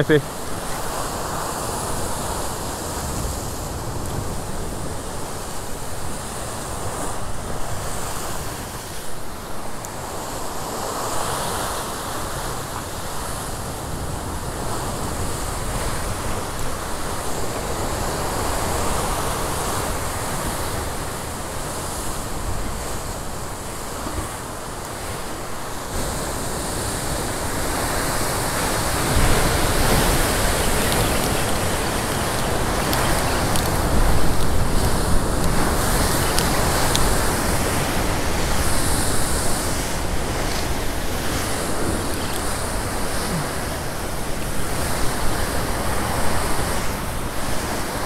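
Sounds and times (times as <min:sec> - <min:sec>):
surf breaking against rocks: 0:13.5 - 0:48.0.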